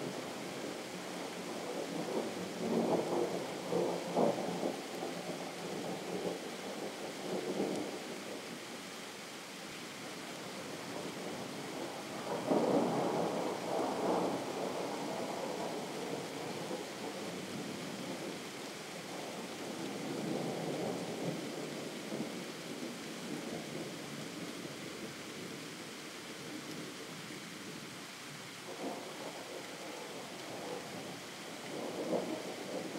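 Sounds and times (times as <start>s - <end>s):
steady hiss: 0.0s - 32.9s.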